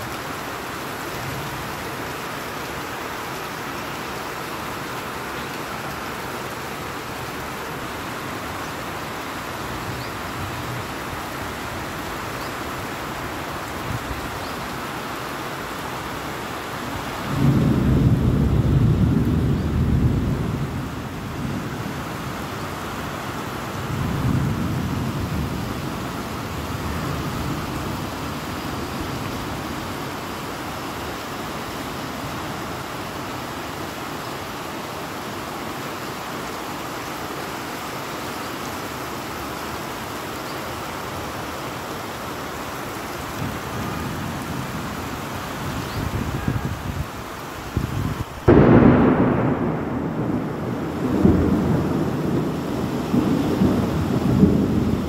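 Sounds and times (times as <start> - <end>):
steady rain falling: 0.0 - 55.0
low rumble of thunder: 17.2 - 22.4, 23.8 - 30.0, 47.8 - 55.0.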